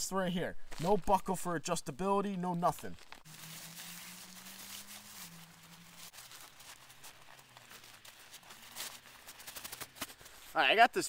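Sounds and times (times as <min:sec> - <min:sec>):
tent fabric rustling: 0:02.7 - 0:10.7.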